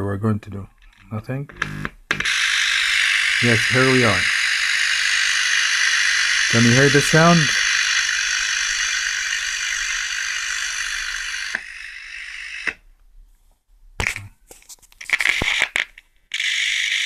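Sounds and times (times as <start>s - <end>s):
loudspeaker static hiss: 1.1s - 8.7s
crackles and pops: 14.0s - 16.3s.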